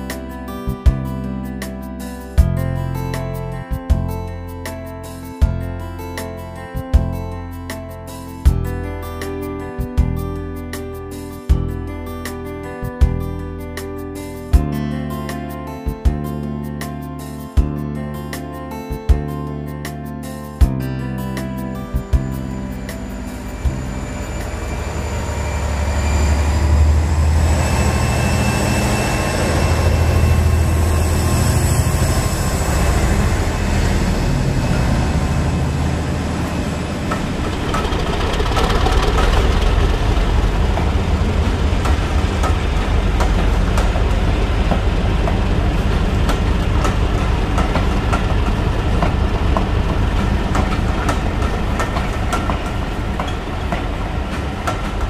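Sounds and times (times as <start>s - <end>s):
diesel engine hum: 21.2s - 55.0s
train wheels clicking over rail joints: 24.4s - 55.0s.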